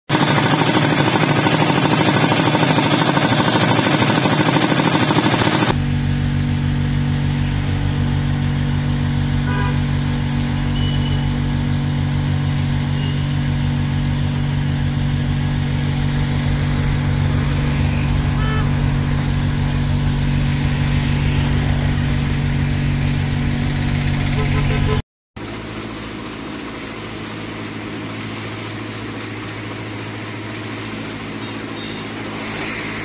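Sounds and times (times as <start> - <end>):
diesel engine clattering: 0.1 - 25.0
vacuum pump engine droning: 0.1 - 33.0.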